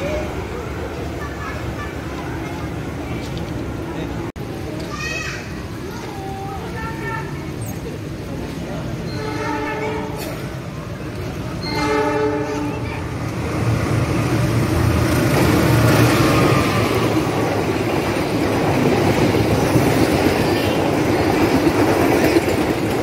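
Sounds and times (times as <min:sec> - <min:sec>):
train passing at speed: 0:00.0 - 0:23.0
locomotive horn: 0:09.1 - 0:10.4, 0:11.6 - 0:12.8.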